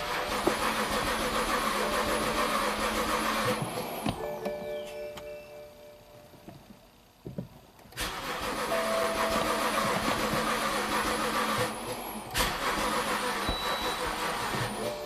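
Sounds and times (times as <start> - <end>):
starter motor cranking engine: 0.0 - 4.2, 7.9 - 15.0.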